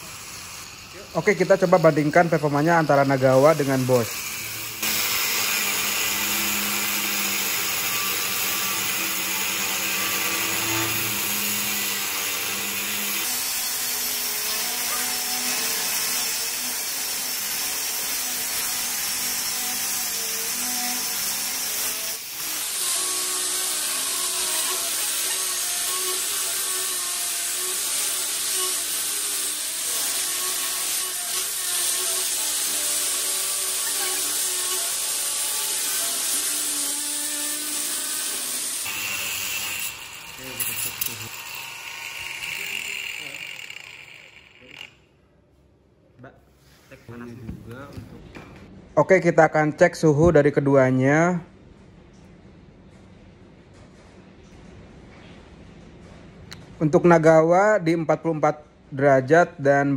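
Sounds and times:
angle grinder cutting steel: 0.0s - 45.0s.

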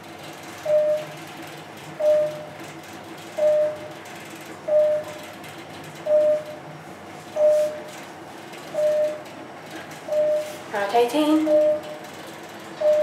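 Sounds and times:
faint elevator hum: 0.0s - 13.0s
elevator beep: 0.6s - 1.2s, 2.0s - 2.6s, 3.3s - 4.0s, 4.6s - 5.3s, 6.0s - 6.6s, 7.3s - 7.9s, 8.7s - 9.3s, 10.0s - 10.6s, 11.2s - 13.0s.

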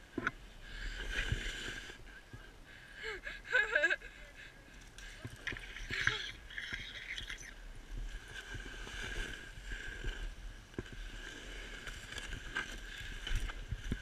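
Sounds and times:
snowboard scraping over snow: 0.4s - 2.5s, 7.7s - 14.0s.

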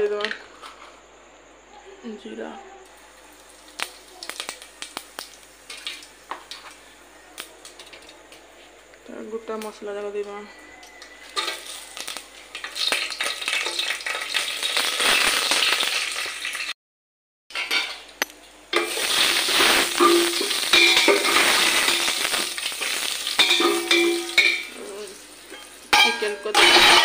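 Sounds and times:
spices sizzling in hot oil: 2.9s - 9.0s, 10.8s - 16.8s, 17.5s - 27.0s
metal spatula scraping a pot: 18.8s - 27.0s.

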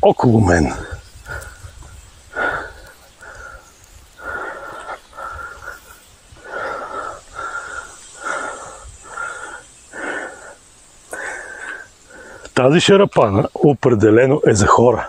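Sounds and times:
man breathing hard with wheeze: 0.8s - 12.6s.

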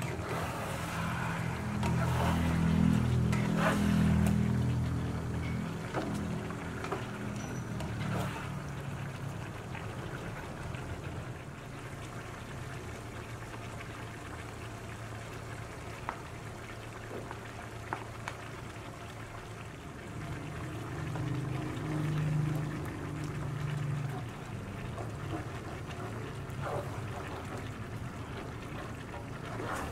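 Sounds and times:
spatula stirring a pan: 0.0s - 8.8s, 23.4s - 29.9s
chicken bubbling in a wok: 0.0s - 29.9s.

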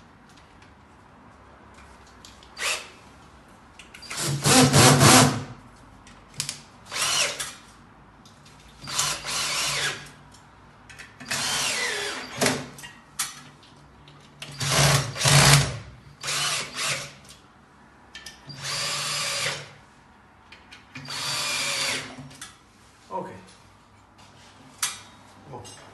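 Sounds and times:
drill driving screws into metal: 2.6s - 2.9s, 4.0s - 5.4s, 6.9s - 7.6s, 8.8s - 10.0s, 11.2s - 12.7s, 14.5s - 17.2s, 18.5s - 19.7s, 21.0s - 22.2s.

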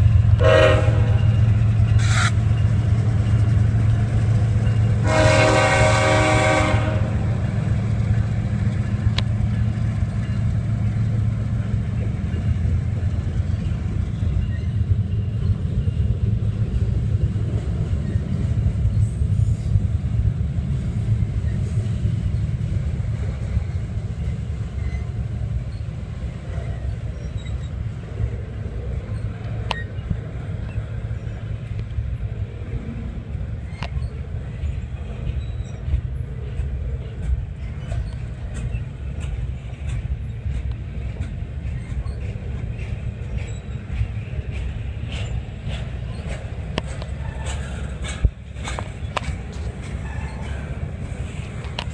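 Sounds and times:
freight train rumble: 0.0s - 51.9s
locomotive horn blast: 0.4s - 1.4s, 5.0s - 7.3s
train wheel clicks: 7.4s - 19.8s, 29.0s - 32.1s, 33.4s - 51.9s.

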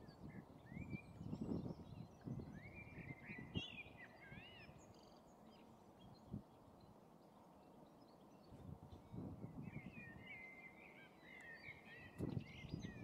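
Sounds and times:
songbird whistling: 9.8s - 13.0s.

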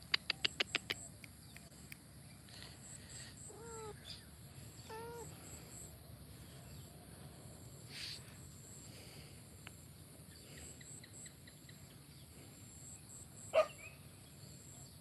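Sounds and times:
sharp clicks: 0.0s - 2.1s
cat meowing: 4.9s - 5.3s.

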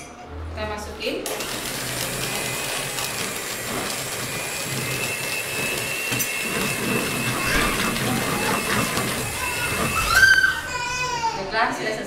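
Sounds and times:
electric hand mixer whirring: 1.2s - 11.0s.

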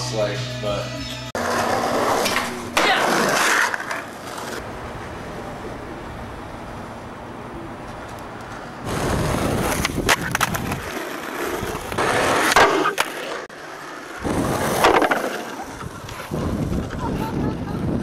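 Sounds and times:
skateboard scraping along curb: 1.4s - 18.0s
skateboard wheels rolling on asphalt: 1.4s - 18.0s
skateboard clacks: 7.8s - 13.4s, 14.2s - 17.8s.

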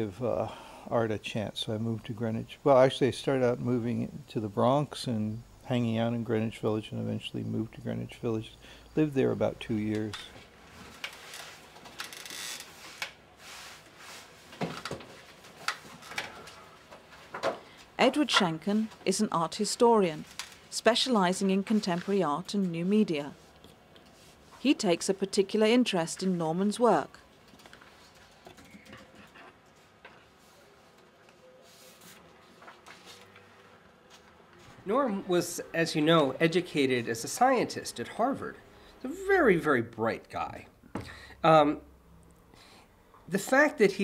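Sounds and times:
paper rustling: 27.4s - 34.7s.

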